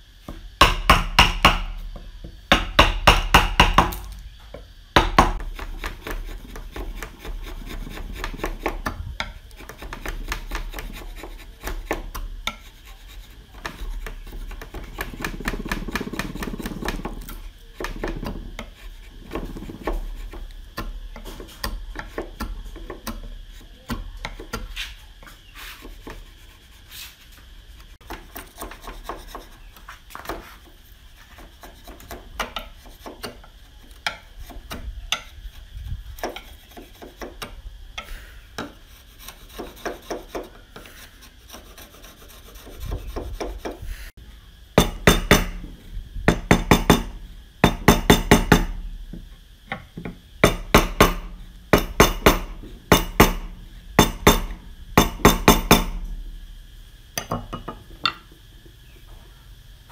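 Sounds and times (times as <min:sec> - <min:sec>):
steel knocking on wood: 0:00.6 - 0:01.8, 0:02.5 - 0:04.1, 0:44.8 - 0:45.7, 0:46.3 - 0:56.2
chisel scraping wood: 0:05.2 - 0:27.4, 0:28.0 - 0:35.6, 0:36.2 - 0:43.8.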